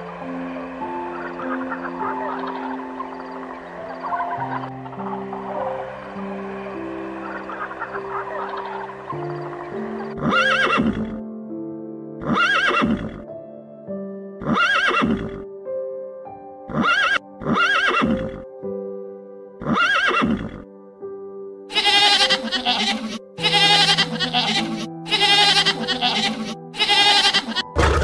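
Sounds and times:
background music: 0.0s - 28.0s
busy animal calls: 7.2s - 11.1s, 12.2s - 13.1s, 16.7s - 18.2s, 21.7s - 27.7s
animal call rising and falling: 10.1s - 11.1s, 12.2s - 13.2s, 14.4s - 15.4s, 16.7s - 18.4s, 19.6s - 20.6s.

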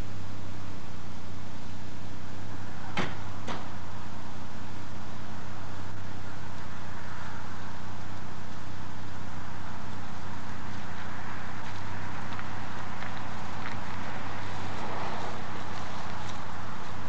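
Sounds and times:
tape hum and hiss: 0.0s - 17.0s
sharp knocks: 3.0s - 3.7s.

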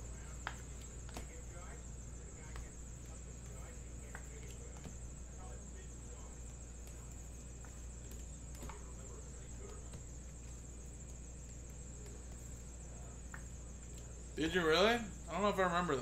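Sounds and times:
high-pitched hiss: 0.0s - 16.0s.

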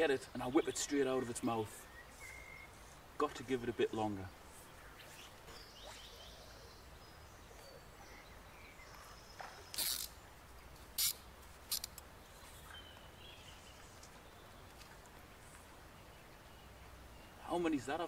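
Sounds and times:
faint birdsong: 0.0s - 18.0s
river riffle rushing: 7.8s - 16.0s.

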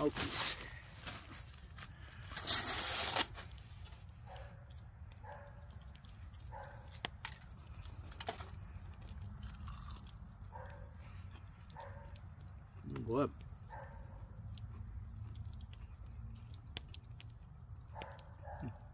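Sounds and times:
aluminium foil crinkling: 0.0s - 10.4s.

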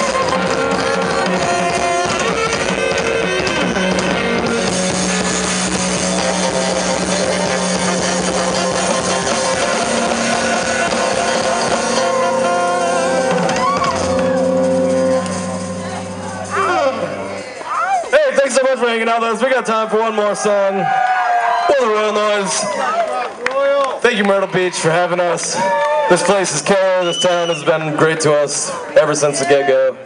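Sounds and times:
saxophone: 0.0s - 18.0s
funk band playing: 0.0s - 19.2s.

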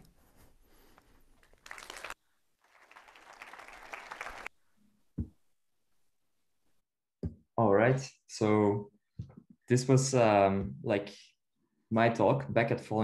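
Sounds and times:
audience applauding: 1.5s - 4.5s.

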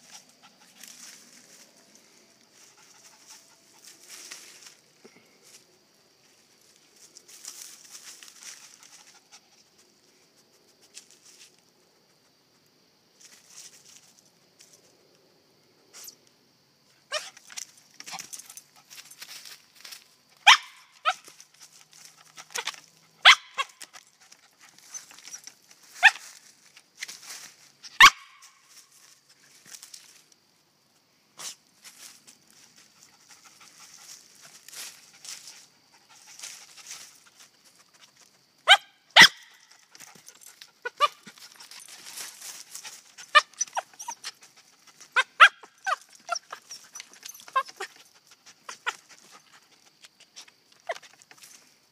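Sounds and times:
dog barking short high barks: 28.0s - 28.5s.

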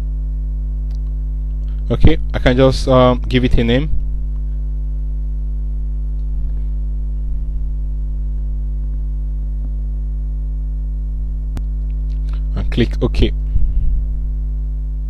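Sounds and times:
electrical mains hum: 0.0s - 15.0s
faint clicks: 0.9s - 1.8s.

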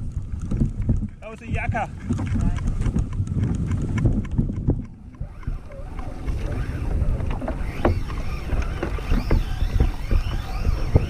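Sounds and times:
wind and water rumble: 0.0s - 11.0s
fishing reel drag screaming: 5.2s - 11.0s.

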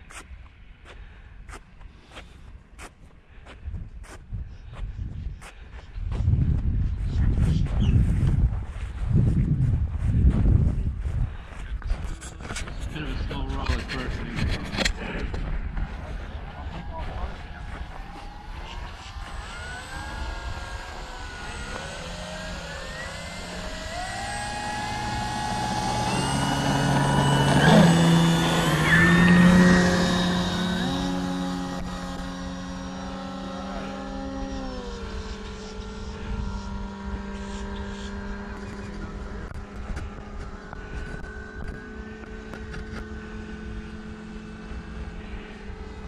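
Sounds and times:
model plane motors whining: 11.3s - 46.0s.

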